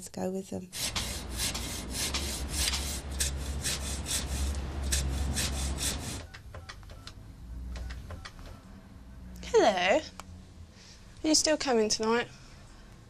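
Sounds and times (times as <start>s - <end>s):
hand saw rasping through wood: 0.8s - 6.3s
telephone keys clicking: 7.8s - 8.6s.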